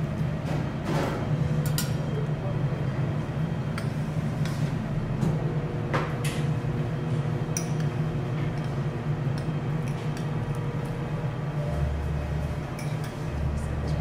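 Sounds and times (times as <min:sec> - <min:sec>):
steady low hum: 0:00.0 - 0:14.0
utensils and trays clinking: 0:12.6 - 0:14.0.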